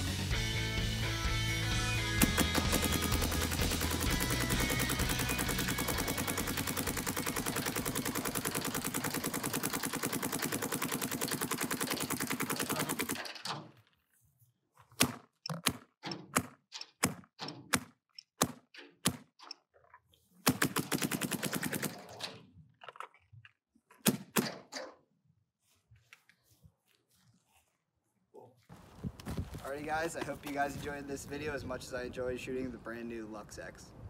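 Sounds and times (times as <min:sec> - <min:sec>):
paintball marker firing: 0:02.2 - 0:13.2.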